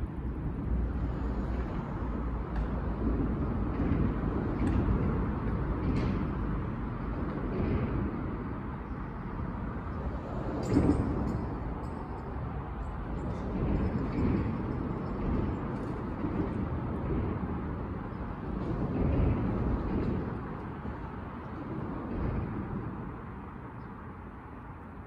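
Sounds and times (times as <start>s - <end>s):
low outdoor rumble: 0.0s - 25.0s.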